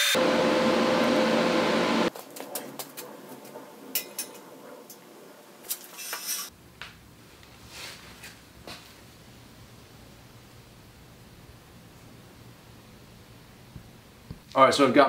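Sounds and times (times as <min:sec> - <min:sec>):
metallic clinks of steel parts: 0:04.0 - 0:04.4.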